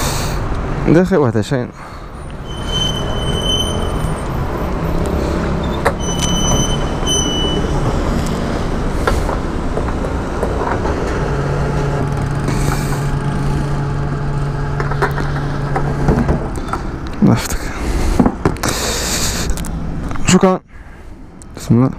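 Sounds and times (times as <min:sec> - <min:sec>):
street traffic: 0:00.0 - 0:21.9
short electronic beeps: 0:02.4 - 0:04.2, 0:05.6 - 0:07.8.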